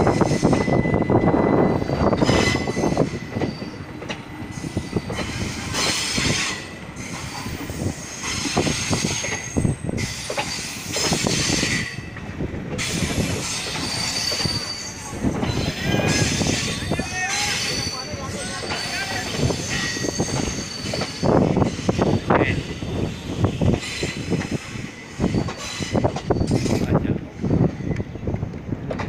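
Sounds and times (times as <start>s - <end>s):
train wheels clattering over joints: 0.0s - 29.0s
wheel squeal: 0.4s - 3.8s, 12.8s - 22.2s, 22.8s - 26.9s.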